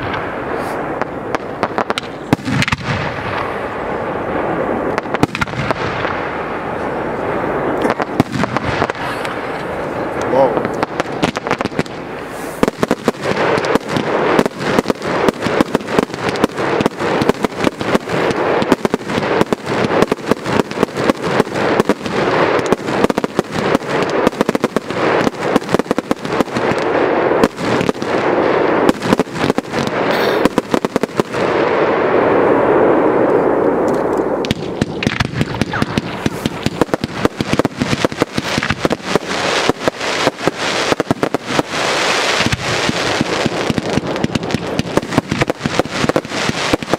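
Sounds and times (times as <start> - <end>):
fireworks bangs and crackle: 0.0 - 46.9.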